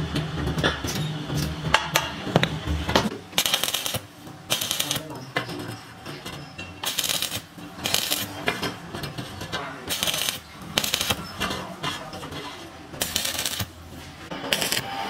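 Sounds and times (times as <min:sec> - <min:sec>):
welding arc crackling: 0:03.4 - 0:05.1, 0:06.8 - 0:08.3, 0:09.9 - 0:11.2, 0:13.0 - 0:13.8, 0:14.4 - 0:15.0.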